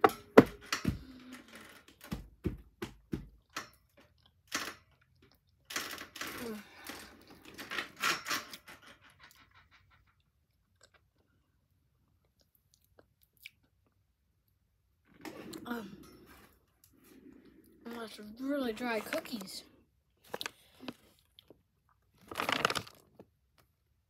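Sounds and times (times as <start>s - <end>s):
child chewing crunchy cookie: 3.4s - 5.8s, 9.1s - 14.7s, 20.0s - 24.0s.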